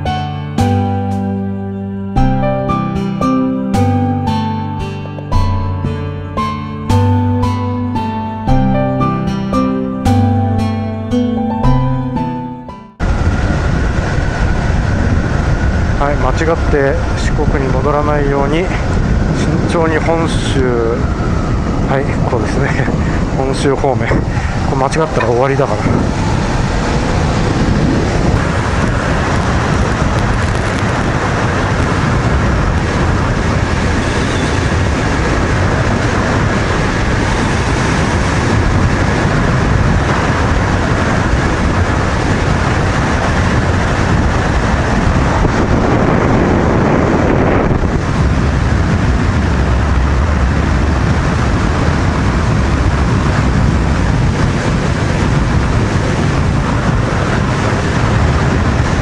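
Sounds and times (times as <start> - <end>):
wind rush on microphone: 13.0 - 59.0.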